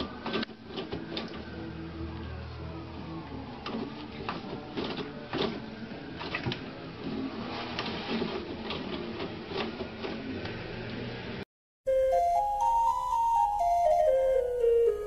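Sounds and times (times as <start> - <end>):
toilet paper rustling and tearing: 7.0 - 10.2.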